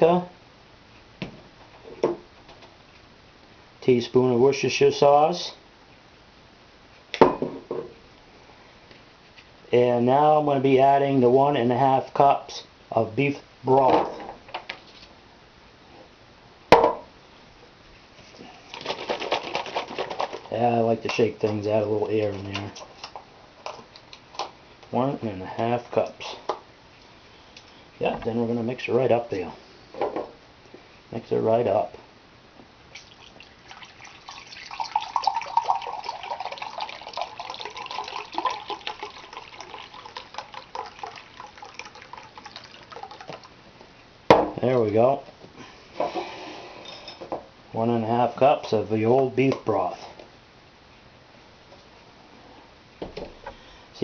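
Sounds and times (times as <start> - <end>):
knock on table: 16.8 - 17.0
carton being shaken: 18.7 - 20.5
liquid pouring into a glass cup: 33.0 - 43.6.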